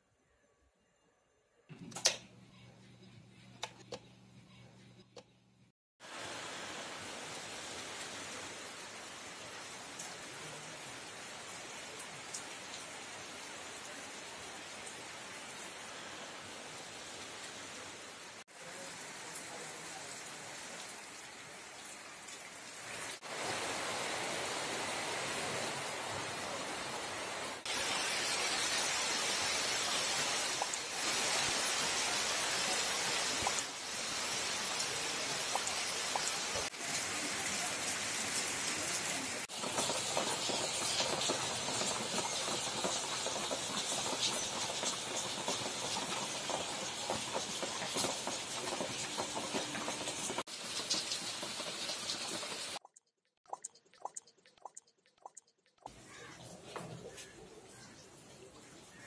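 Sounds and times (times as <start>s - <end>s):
rain hissing: 6.0s - 52.8s.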